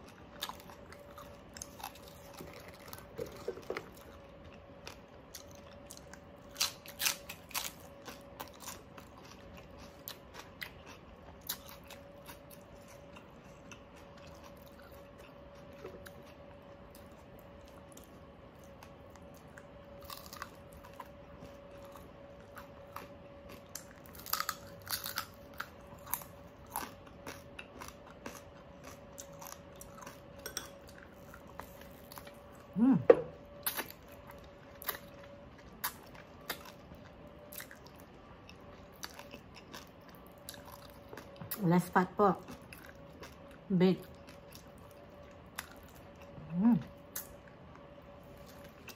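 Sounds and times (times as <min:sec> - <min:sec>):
faint steady hum: 0:00.0 - 0:48.9
crunching fried skin: 0:00.3 - 0:15.0, 0:19.8 - 0:32.5.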